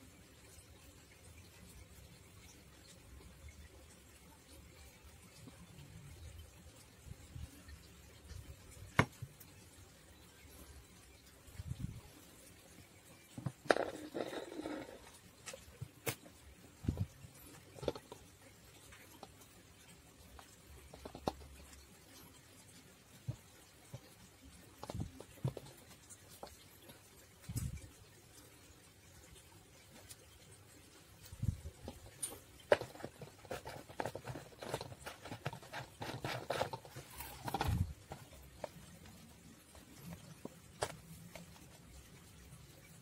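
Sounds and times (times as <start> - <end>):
plastic bottle and pipe knocking: 17.8 - 18.2, 20.9 - 21.4
plastic bottle crinkling: 31.8 - 39.2.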